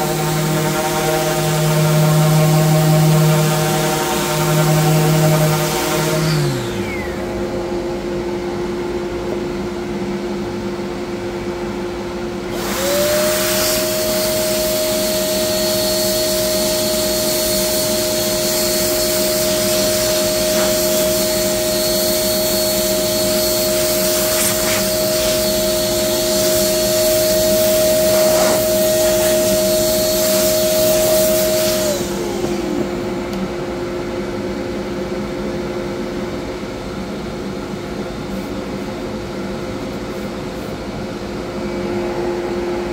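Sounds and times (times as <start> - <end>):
shop vacuum running: 0.0 - 42.9
steady machine hum: 0.0 - 42.9.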